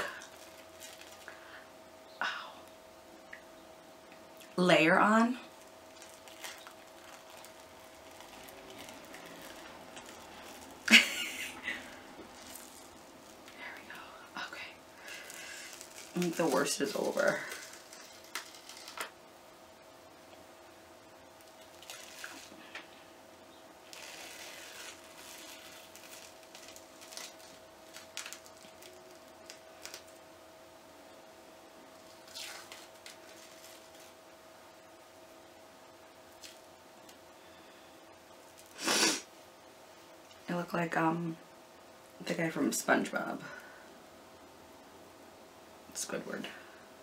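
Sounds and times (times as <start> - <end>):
peel-off mask crackling: 0.0 - 1.7, 4.4 - 19.3, 20.3 - 30.3, 31.8 - 34.3, 36.2 - 39.3
loud hiss: 38.6 - 39.3.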